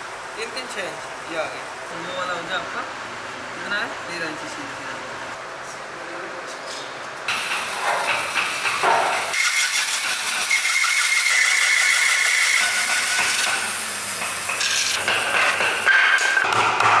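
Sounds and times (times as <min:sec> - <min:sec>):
bandsaw cutting wood: 0:08.9 - 0:13.9.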